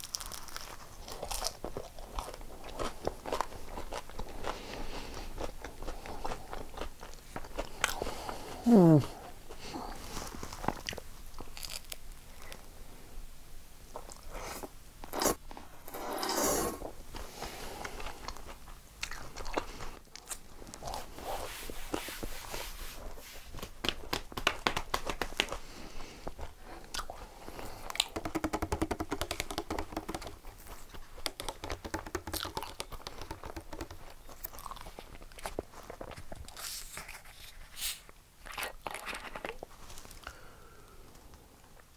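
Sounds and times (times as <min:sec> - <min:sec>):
person chewing crunchy pizza: 0:00.0 - 0:12.6, 0:17.2 - 0:21.5, 0:25.5 - 0:37.7, 0:38.4 - 0:40.4.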